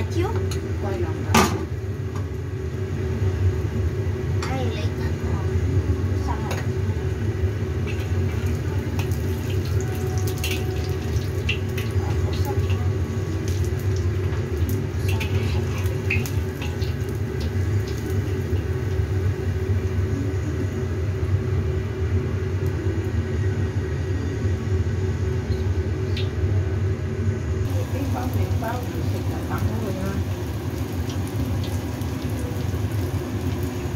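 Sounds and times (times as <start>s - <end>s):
hot oil sizzling in a wok: 0.0s - 24.0s, 27.6s - 33.9s.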